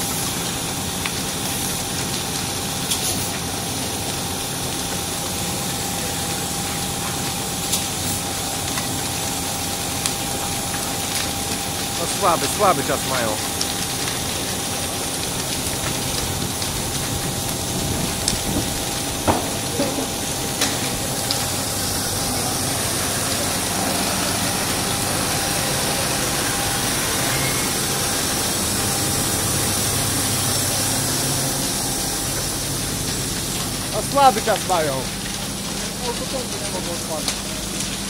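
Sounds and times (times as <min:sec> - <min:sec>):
fire engine humming: 0:00.0 - 0:38.0
constant hiss: 0:10.3 - 0:38.0.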